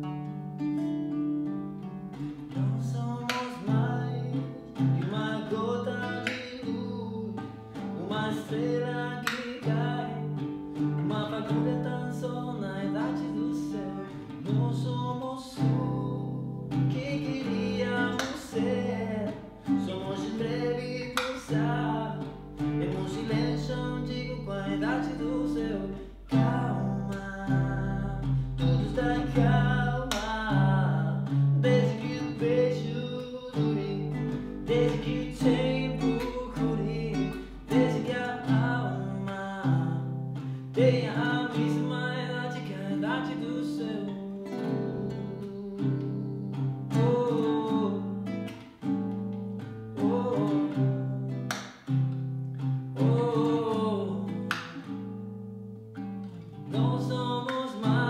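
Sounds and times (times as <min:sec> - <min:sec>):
classical guitar plucked and strummed: 0:00.0 - 0:58.0
man singing: 0:02.2 - 0:51.5, 0:52.6 - 0:55.0, 0:56.5 - 0:58.0.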